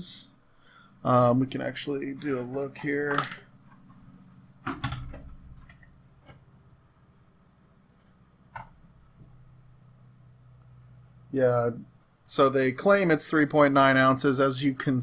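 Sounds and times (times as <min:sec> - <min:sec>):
faint steady hum: 0:00.0 - 0:15.0.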